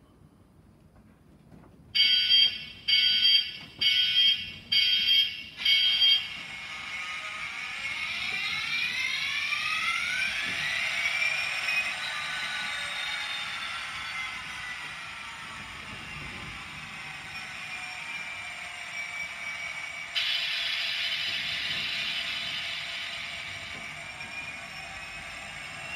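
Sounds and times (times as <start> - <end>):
loud warning beeps: 2.0 - 6.5, 18.9 - 25.9
model diesel engine whine: 2.2 - 25.9.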